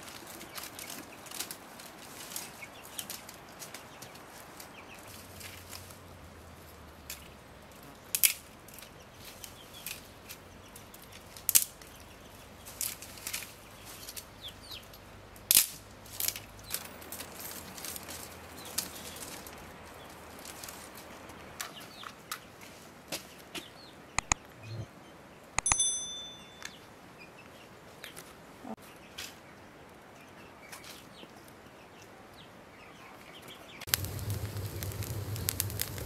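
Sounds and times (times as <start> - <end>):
branches rustling: 0.0 - 23.6, 33.8 - 36.0
twigs snapping: 8.1 - 10.4, 11.0 - 11.9, 15.4 - 19.7, 33.9 - 36.0
faint bird chirps: 24.2 - 25.2.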